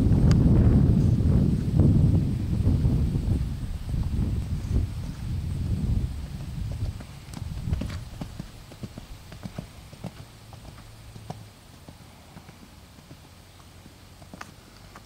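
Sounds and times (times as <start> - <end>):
low rumble: 0.0 - 8.4
hoofbeats on sand: 4.0 - 15.0.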